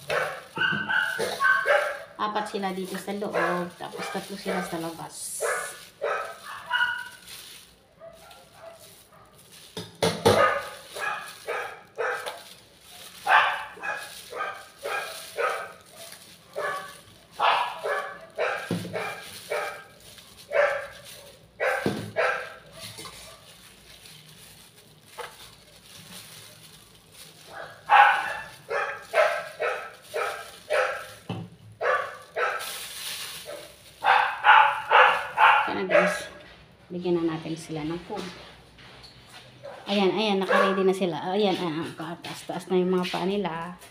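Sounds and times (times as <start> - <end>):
dogs barking: 0.0 - 2.2, 2.8 - 23.6, 27.4 - 36.4, 39.6 - 41.0.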